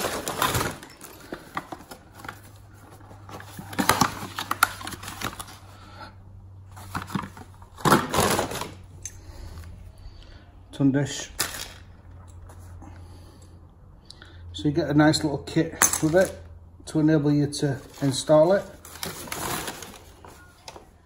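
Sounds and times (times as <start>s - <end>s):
paper bag rustling: 0.0s - 5.9s, 6.7s - 9.5s, 11.2s - 12.6s, 17.8s - 21.0s.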